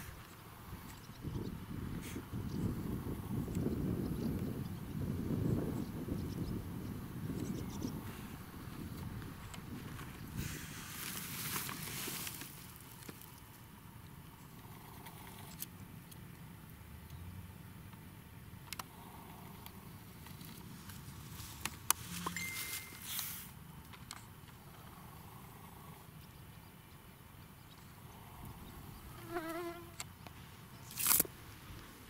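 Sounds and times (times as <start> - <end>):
sharp clicks and rustles: 8.9 - 13.7, 19.6 - 24.6, 30.0 - 31.4
whistle-like tone: 22.3 - 23.3.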